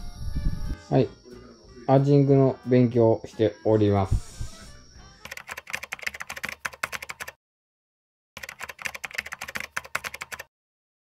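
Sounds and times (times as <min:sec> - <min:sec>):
typing on computer keyboard: 0:05.2 - 0:07.4, 0:08.4 - 0:10.5.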